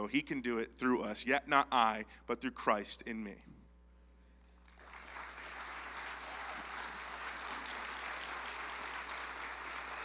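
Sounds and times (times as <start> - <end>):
audience applauding: 4.7 - 10.0.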